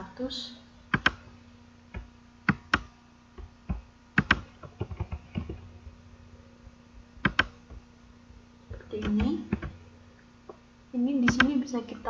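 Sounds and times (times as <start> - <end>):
faint steady hum: 0.0 - 12.0
mouse and keyboard clicks: 7.2 - 7.5.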